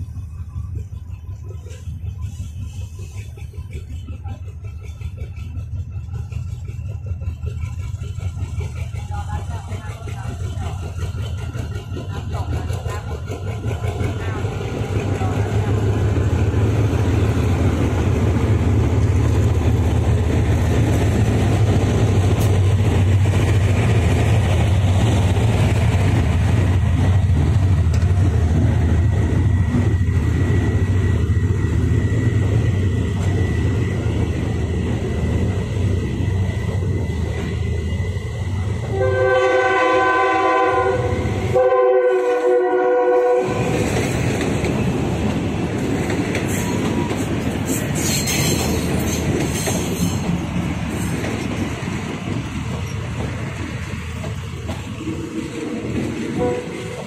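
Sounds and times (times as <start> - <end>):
locomotive engine drone: 0.0 - 57.0
train coaches rumbling on rails: 0.0 - 57.0
locomotive horn blasts: 38.9 - 43.8, 56.4 - 57.0.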